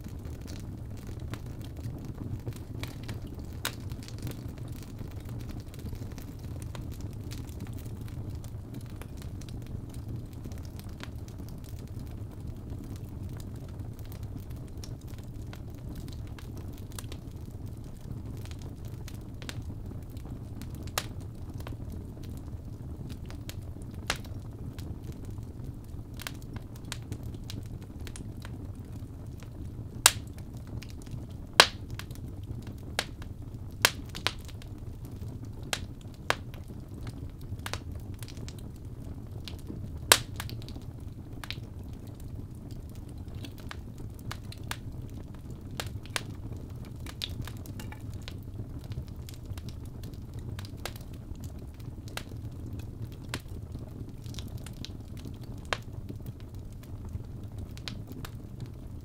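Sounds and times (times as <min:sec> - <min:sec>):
wood crackling and popping: 0:00.0 - 0:59.0.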